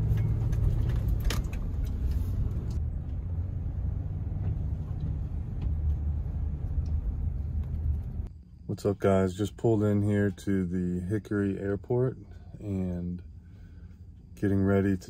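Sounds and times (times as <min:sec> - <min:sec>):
car engine and road noise: 0:00.0 - 0:08.4.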